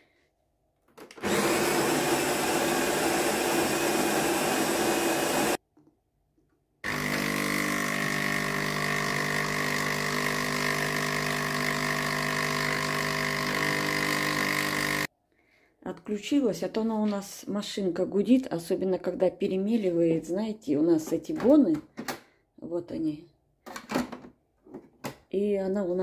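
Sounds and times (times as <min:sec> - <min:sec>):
coffee machine grinding beans: 0:01.2 - 0:05.6, 0:06.8 - 0:15.1.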